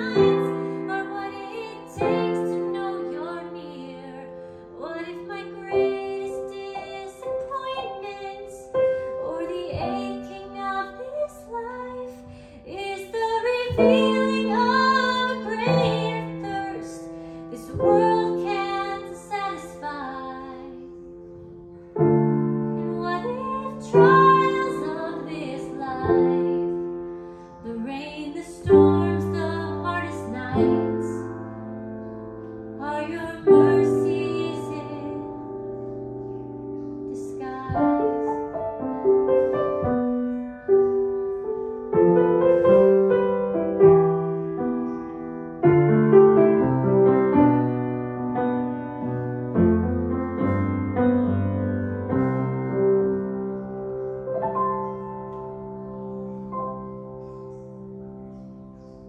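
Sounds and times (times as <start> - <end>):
woman singing: 0.0 - 21.0, 22.8 - 27.0, 27.6 - 31.5, 32.8 - 35.7, 37.1 - 39.5
grand piano playing chords: 0.0 - 59.0.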